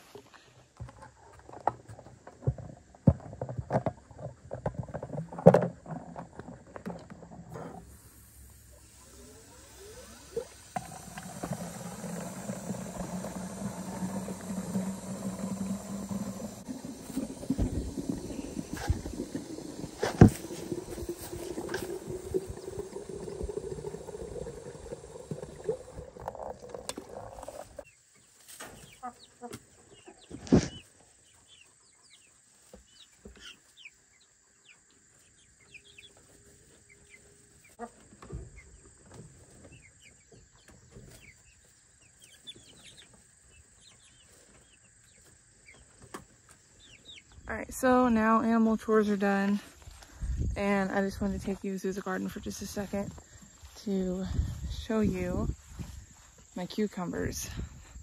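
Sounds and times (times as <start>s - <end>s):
water pouring into container: 8.8s - 27.8s.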